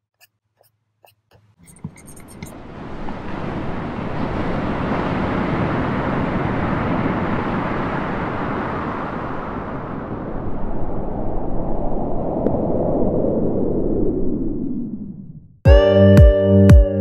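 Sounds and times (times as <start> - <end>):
waves breaking on beach: 1.8 - 11.0.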